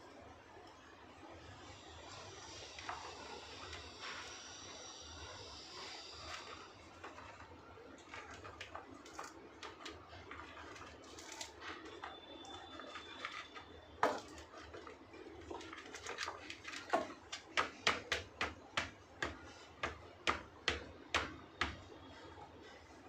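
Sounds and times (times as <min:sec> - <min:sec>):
sharp knocks of hard objects: 0:16.9 - 0:21.8.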